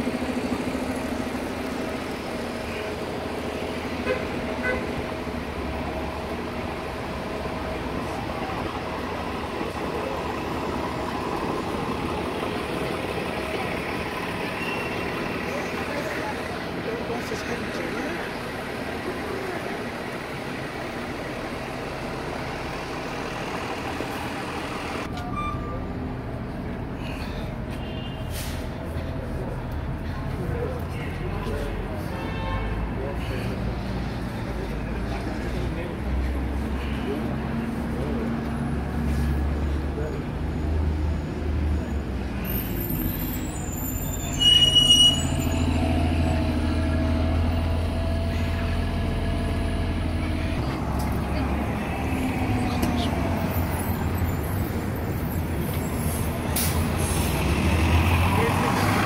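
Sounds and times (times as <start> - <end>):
bus engine humming: 0.0 - 59.0
street noise: 0.0 - 59.0
brake squeal: 14.2 - 16.3, 25.0 - 26.1, 27.0 - 29.2, 38.8 - 50.6, 52.3 - 59.0.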